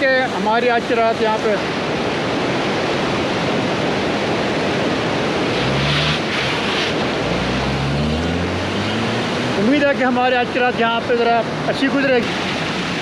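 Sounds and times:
roar of river water: 0:01.0 - 0:10.8
car engine hum: 0:01.7 - 0:13.0.

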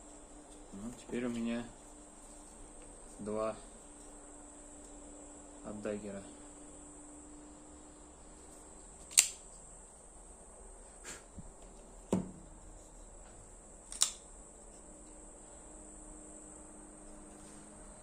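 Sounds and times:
folding knife clicking into place: 0:09.1 - 0:09.4, 0:13.9 - 0:14.2
dull knock: 0:12.1 - 0:12.4.

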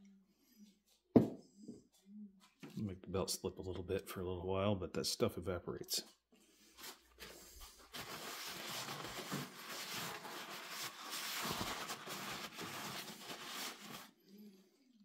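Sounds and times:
paper towel rubbing on metal: 0:07.9 - 0:14.1.

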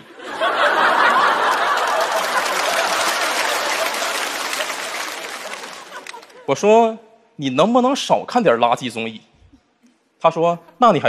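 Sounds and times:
audience laughing and clapping: 0:00.0 - 0:06.6.

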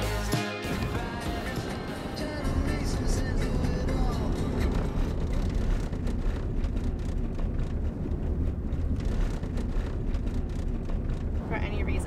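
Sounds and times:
car road rumble: 0:00.0 - 0:12.0.

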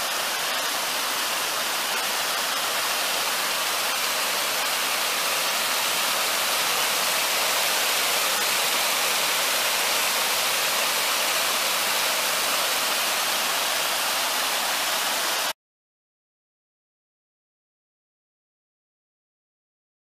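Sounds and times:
waterfall splashing on rocks: 0:00.0 - 0:15.6.

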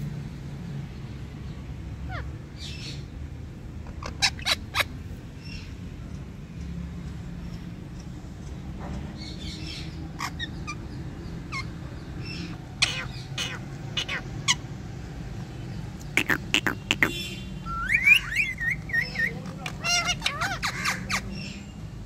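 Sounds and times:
parakeets squawking and chattering: 0:01.7 - 0:22.0
warbling whistled bird notes: 0:16.1 - 0:19.4.

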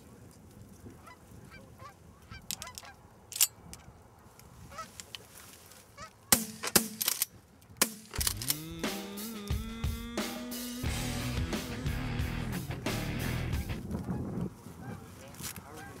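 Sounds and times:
geese honking: 0:08.5 - 0:16.0.

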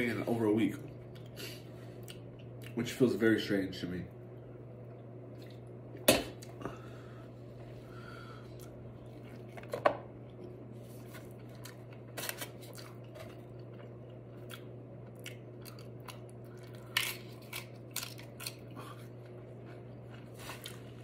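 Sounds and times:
chewing food: 0:08.5 - 0:21.0
tortilla chip crunch: 0:10.9 - 0:21.0.

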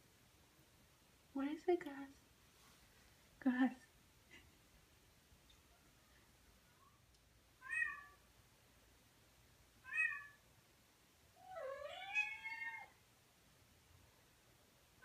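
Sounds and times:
cat meowing: 0:07.6 - 0:08.2, 0:09.8 - 0:10.4, 0:11.4 - 0:13.0.

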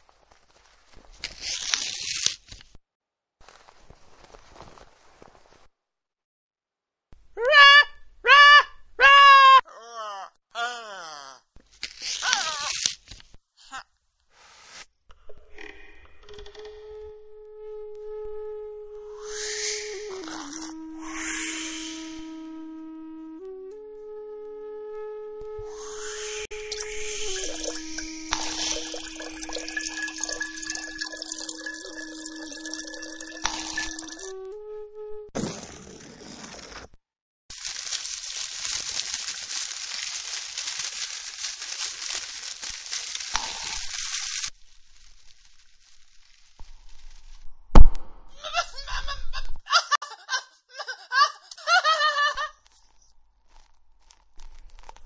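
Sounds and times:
water trickling and dripping: 0:26.5 - 0:34.3
high-pitched voice giggling: 0:48.3 - 0:52.5.

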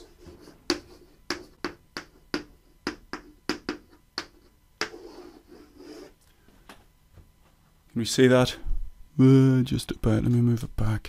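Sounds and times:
chalk tapping on blackboard: 0:00.2 - 0:06.2
chalk scraping stroke: 0:04.8 - 0:06.2.

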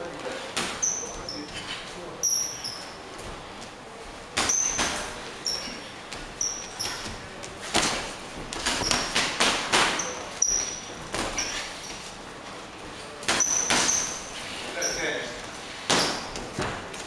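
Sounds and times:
shoes squeaking on canvas: 0:05.4 - 0:07.2, 0:08.6 - 0:09.2, 0:10.0 - 0:12.2.

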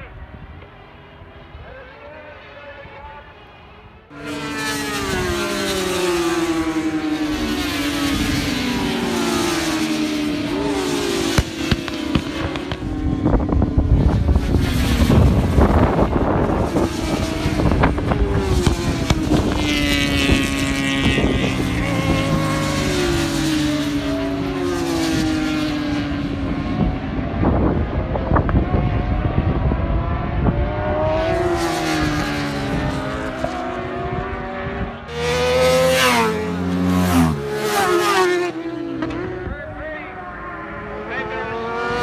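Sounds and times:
racing motorcycle engines revving: 0:00.0 - 0:42.0.

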